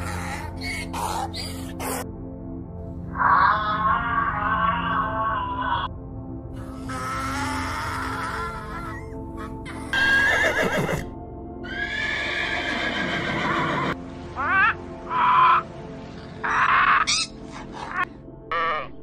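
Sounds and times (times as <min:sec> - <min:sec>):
background music: 0:00.0 - 0:19.0
donkey braying: 0:06.6 - 0:15.7, 0:16.4 - 0:19.0
parrot squawking: 0:16.5 - 0:19.0.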